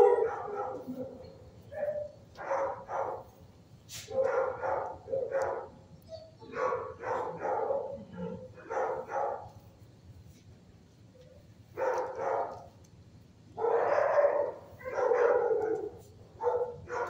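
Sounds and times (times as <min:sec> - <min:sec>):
dog barking: 0:00.0 - 0:03.4, 0:04.0 - 0:05.8, 0:06.4 - 0:09.6, 0:11.8 - 0:12.7, 0:13.6 - 0:17.0.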